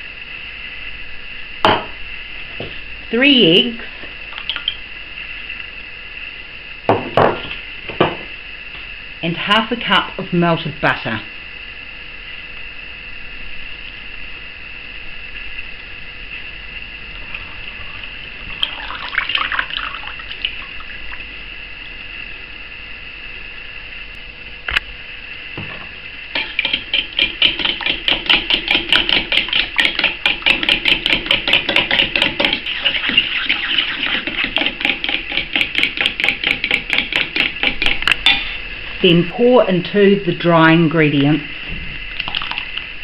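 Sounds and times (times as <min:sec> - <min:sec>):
single knock: 0:01.7 - 0:02.0, 0:06.9 - 0:08.2
fork beating in metal bowl: 0:26.4 - 0:38.6.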